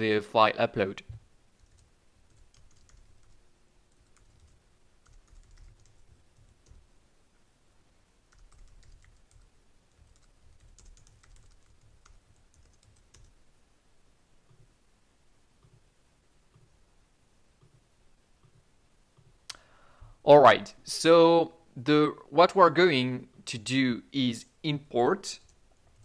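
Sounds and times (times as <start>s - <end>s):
computer keyboard typing: 1.6s - 6.8s, 8.3s - 13.4s.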